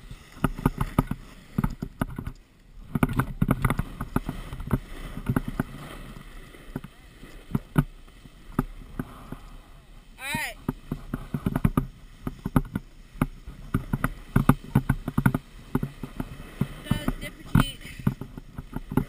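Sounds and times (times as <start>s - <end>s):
camera knocking and rattling: 0.4s - 5.7s, 10.6s - 19.0s.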